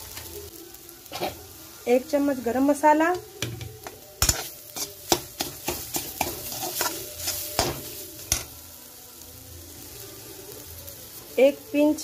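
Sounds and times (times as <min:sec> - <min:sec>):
food sizzling in oil: 0:00.0 - 0:12.0
metal spatula scraping a pan: 0:04.2 - 0:08.6.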